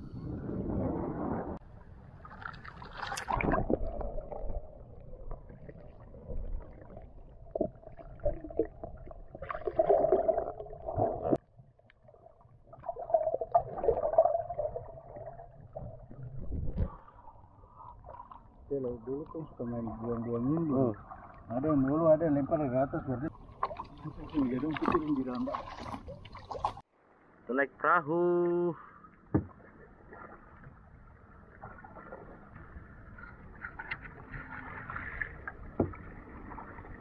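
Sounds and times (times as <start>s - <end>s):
underwater sloshing and gurgling: 0.0s - 27.4s, 28.8s - 37.0s
water splash: 2.2s - 11.4s, 23.5s - 26.9s.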